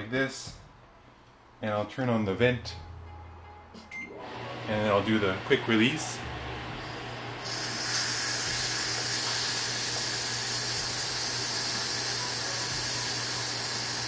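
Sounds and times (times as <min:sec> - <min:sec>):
steam hissing from a valve: 0:07.4 - 0:14.0.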